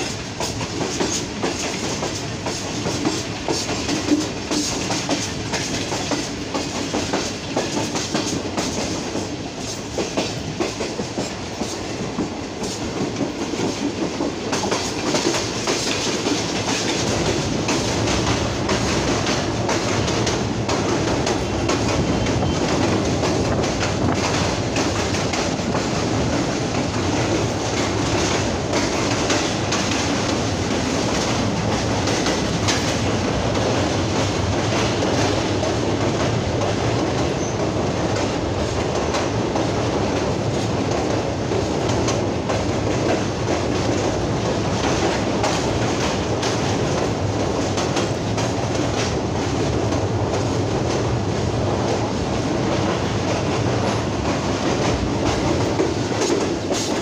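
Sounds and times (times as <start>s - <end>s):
clickety-clack over rail joints: 0.0s - 57.0s
train wheels rumbling on rails: 0.0s - 57.0s.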